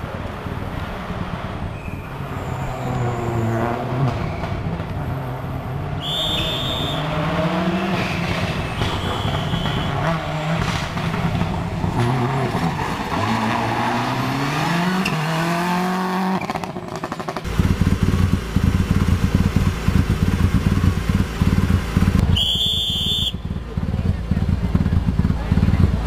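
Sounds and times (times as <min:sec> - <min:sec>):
rally car engine revving: 0:00.0 - 0:26.0
loud choppy low rumble: 0:23.3 - 0:26.0.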